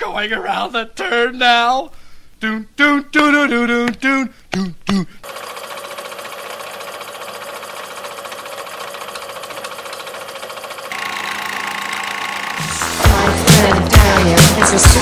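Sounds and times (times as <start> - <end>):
rapid mechanical clatter: 5.2 - 13.7.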